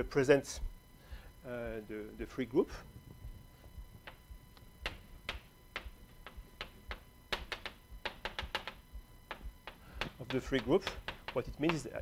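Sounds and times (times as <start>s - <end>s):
chalk tapping on blackboard: 4.8s - 11.9s.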